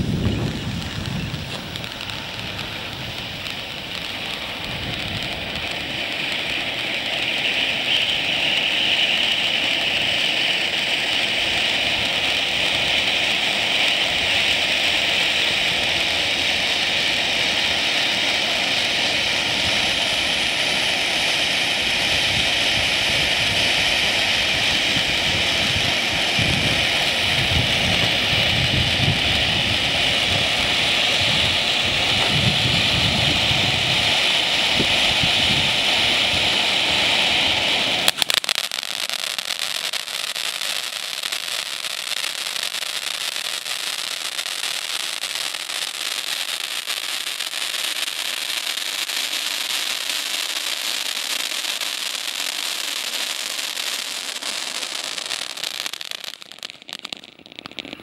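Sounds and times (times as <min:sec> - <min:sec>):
firework pop: 0:00.0 - 0:07.7, 0:38.0 - 0:39.5, 0:56.4 - 0:58.0
crackling sparks: 0:00.0 - 0:58.0
firework fountain hissing: 0:00.0 - 0:58.0.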